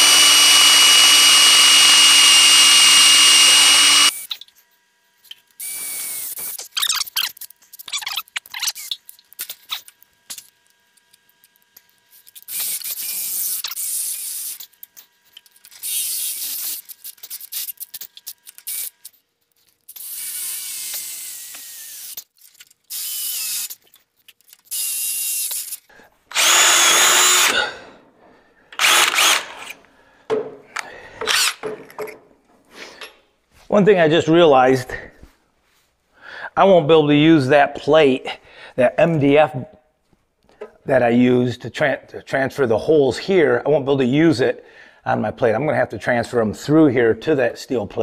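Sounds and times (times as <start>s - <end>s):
cordless drill boring into steel: 0.0s - 4.3s, 19.9s - 22.3s, 22.9s - 23.8s, 24.7s - 27.7s, 28.8s - 29.8s, 31.3s - 31.6s.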